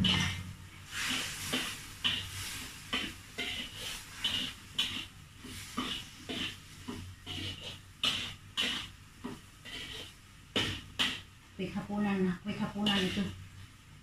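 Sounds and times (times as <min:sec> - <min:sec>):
spatula scraping a wok: 0:00.0 - 0:11.9, 0:12.5 - 0:13.4
food sizzling: 0:00.0 - 0:14.0.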